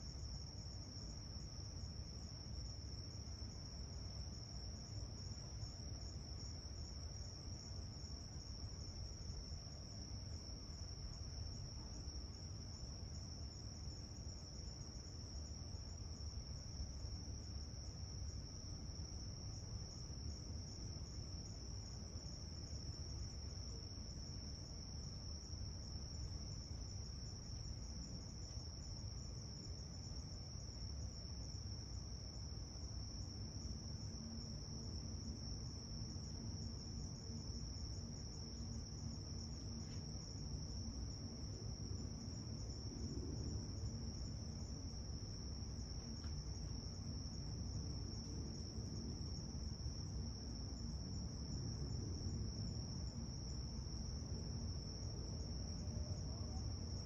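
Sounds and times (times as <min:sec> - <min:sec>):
crickets trilling: 0:00.0 - 0:57.0.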